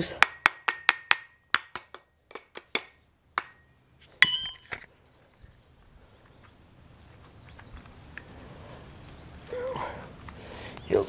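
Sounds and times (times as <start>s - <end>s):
ringing metal clink: 3.4s - 4.7s.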